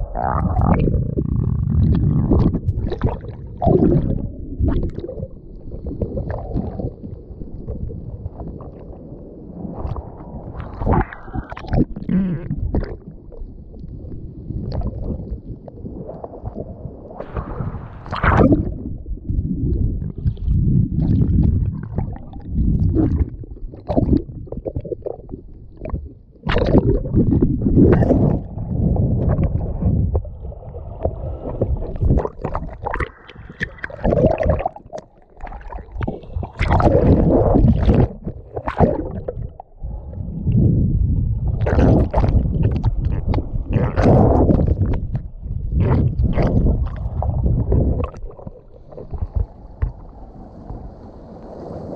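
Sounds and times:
rough sea waves sloshing: 13.5 - 20.1, 26.6 - 51.9.

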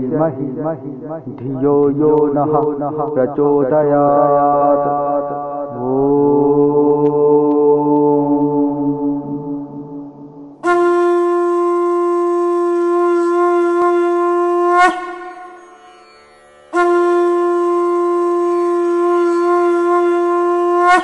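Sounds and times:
conch shell blasts: 10.6 - 16.1, 16.7 - 21.0.

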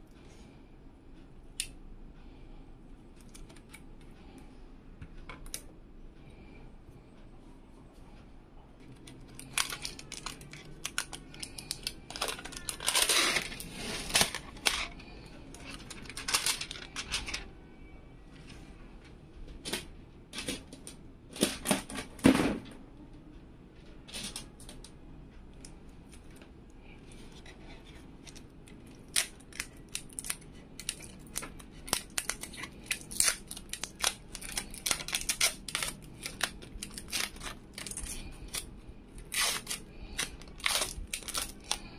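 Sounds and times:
plastic film crinkling and peeling: 8.9 - 17.5, 27.4 - 41.9.

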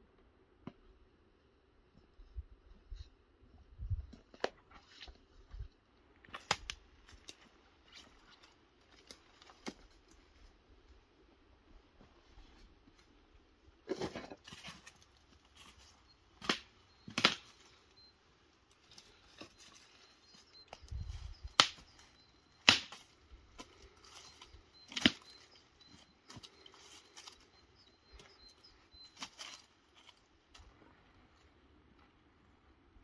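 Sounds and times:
dry branches snapping: 6.3 - 7.5, 16.4 - 17.5, 20.7 - 27.4
footsteps in dry leaves: 22.8 - 27.5, 29.0 - 30.2.

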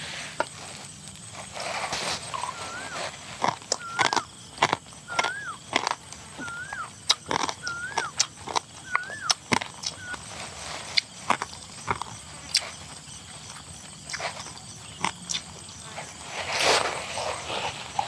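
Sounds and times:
animal whistle call: 2.3 - 3.0, 3.7 - 4.3, 5.1 - 5.6, 6.4 - 7.0, 7.6 - 8.2, 8.8 - 10.2.

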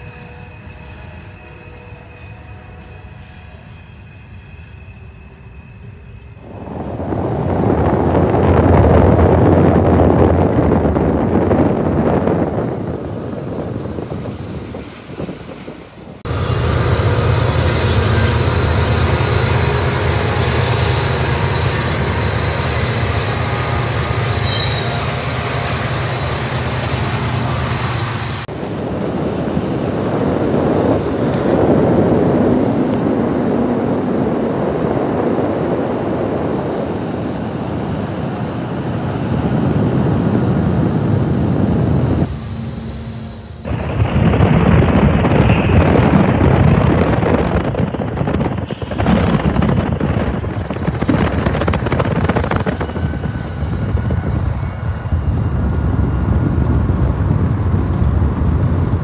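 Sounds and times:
diesel locomotive engine drone: 0.0 - 59.0
rail noise: 0.0 - 59.0.

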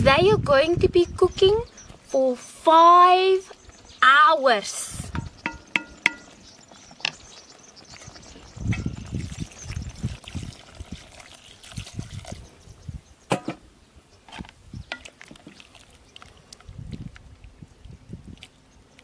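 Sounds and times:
wooden spoon stirring liquid: 5.1 - 12.4, 14.8 - 18.6
sharp knock: 5.2 - 6.2
water pouring into a pot: 8.1 - 12.6, 14.9 - 17.1.

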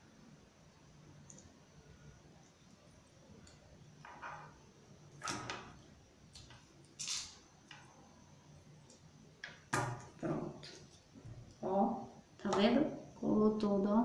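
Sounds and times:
small knocks and scrapes: 4.0 - 4.6.

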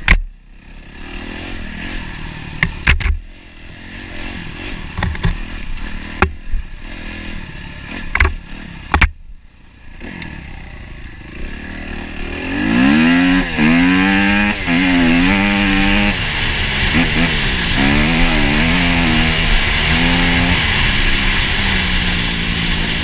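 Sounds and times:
dirt bike engine revving: 0.0 - 23.0
knocks and clatter from bike: 2.6 - 3.3, 4.9 - 7.1, 7.9 - 9.2.

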